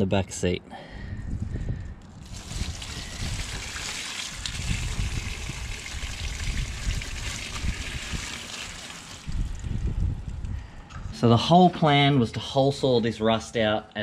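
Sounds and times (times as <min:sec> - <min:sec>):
water pouring into drain grate: 0:02.2 - 0:09.7.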